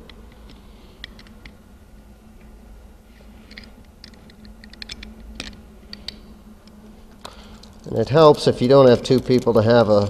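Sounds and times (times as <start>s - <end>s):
faint steady hum: 0.0s - 10.0s
metal parts clicking and clinking: 3.5s - 6.2s, 9.0s - 10.0s.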